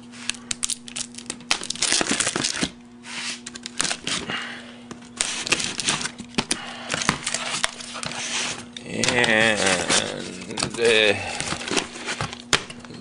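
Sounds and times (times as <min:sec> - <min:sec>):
knife slicing packing tape: 0:00.2 - 0:04.3, 0:05.2 - 0:06.2
cardboard rustling: 0:05.1 - 0:13.0.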